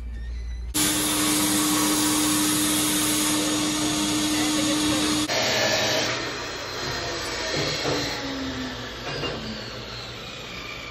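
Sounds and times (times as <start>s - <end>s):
faint workshop noise: 0.0s - 10.9s
steady machine hum: 0.7s - 7.3s
sandblast air hiss: 0.8s - 5.4s.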